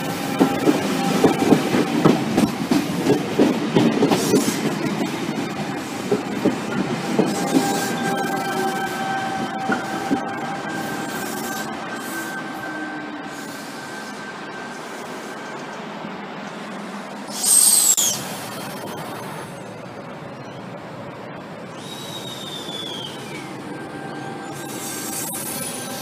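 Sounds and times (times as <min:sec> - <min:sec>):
electric train running: 0:00.0 - 0:26.0
whistle falling in pitch: 0:21.8 - 0:23.4.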